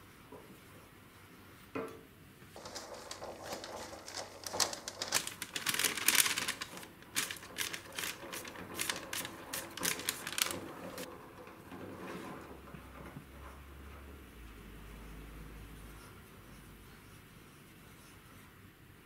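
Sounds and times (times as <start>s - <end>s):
paper crinkling: 2.6s - 11.1s.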